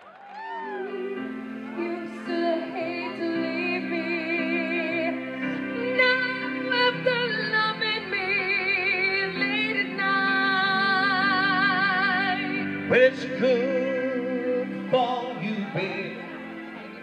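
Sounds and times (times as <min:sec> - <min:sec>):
instrumental backing music: 0:00.5 - 0:17.0
woman singing into a microphone: 0:00.6 - 0:12.9.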